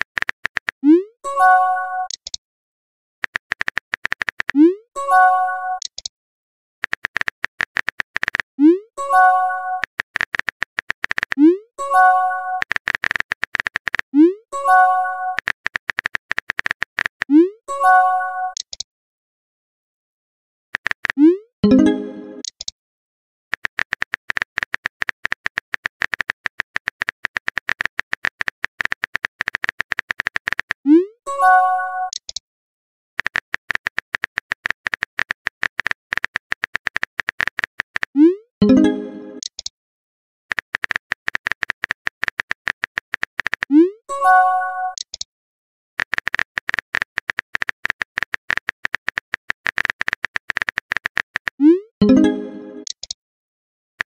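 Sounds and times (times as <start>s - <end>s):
phone keyboard typing clicks: 0.0s - 0.9s, 2.0s - 2.4s, 3.2s - 4.8s, 5.8s - 6.1s, 6.8s - 8.5s, 9.8s - 11.6s, 12.6s - 14.2s, 15.3s - 17.4s, 18.5s - 18.8s, 20.8s - 22.7s, 23.5s - 30.9s, 32.1s - 32.4s, 33.2s - 39.7s, 40.5s - 43.8s, 44.9s - 45.3s, 46.0s - 53.2s
message sent chime: 21.6s - 22.4s, 38.6s - 39.4s, 52.0s - 52.9s.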